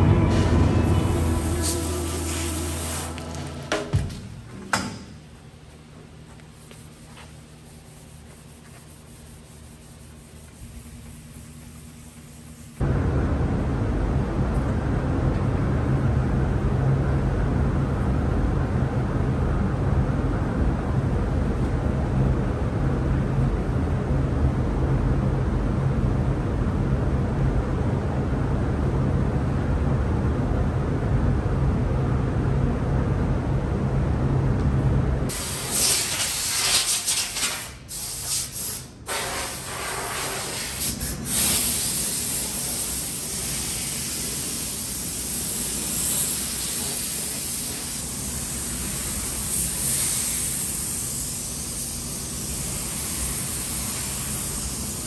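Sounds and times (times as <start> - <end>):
low rumble: 0.0 - 4.5, 12.8 - 35.3
paint spray gun hissing: 1.2 - 3.5, 35.3 - 55.0.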